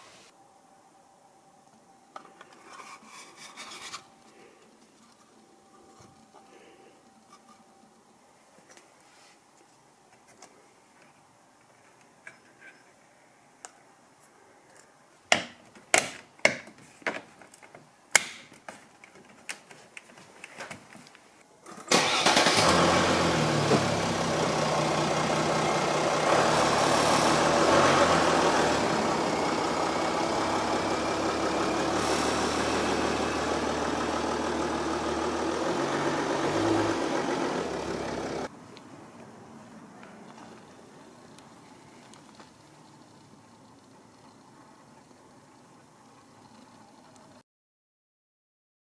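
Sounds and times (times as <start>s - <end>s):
car engine starting and running: 21.7s - 38.5s.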